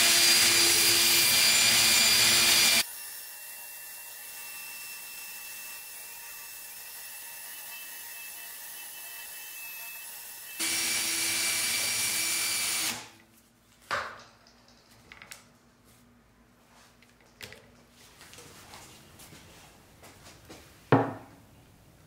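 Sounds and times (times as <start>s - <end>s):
cordless drill running: 0.0s - 2.9s, 10.6s - 13.1s.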